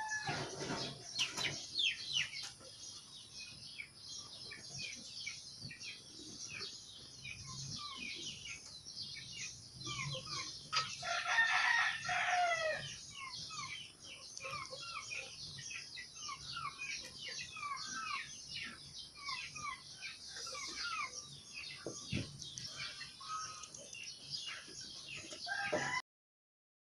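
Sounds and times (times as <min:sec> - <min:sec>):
rooster crowing: 0:00.0 - 0:00.6, 0:11.0 - 0:12.9, 0:25.4 - 0:26.0
small birds chirping: 0:00.0 - 0:26.0.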